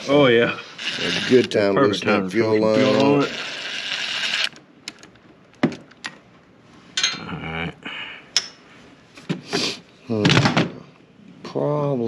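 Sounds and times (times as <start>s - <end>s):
person mumbling: 0.0s - 3.4s.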